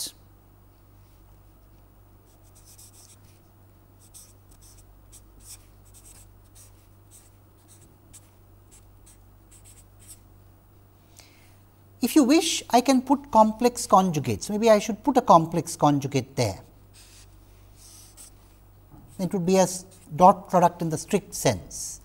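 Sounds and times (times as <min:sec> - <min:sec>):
low steady hum: 0:00.0 - 0:22.0
marker writing on paper: 0:02.3 - 0:03.4, 0:04.0 - 0:10.2, 0:17.0 - 0:18.4.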